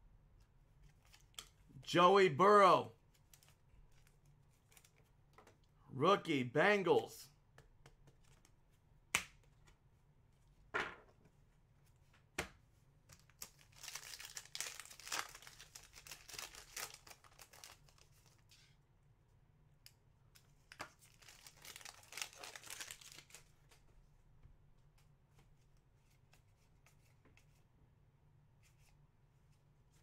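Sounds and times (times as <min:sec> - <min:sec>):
foil pack tearing and crinkling: 0:13.4 - 0:17.9, 0:21.1 - 0:23.4.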